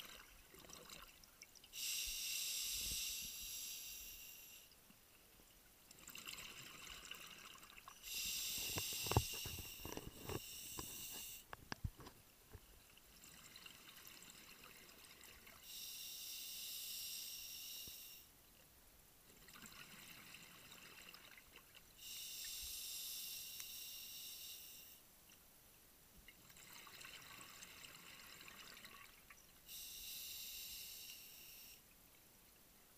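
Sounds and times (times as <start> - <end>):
diver inhaling through regulator: 1.8 - 4.7, 8.0 - 11.4, 29.7 - 31.8.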